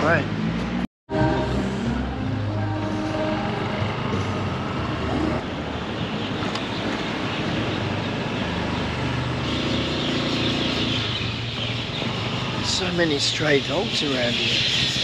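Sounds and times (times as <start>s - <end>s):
scooter engine running: 6.3s - 15.0s.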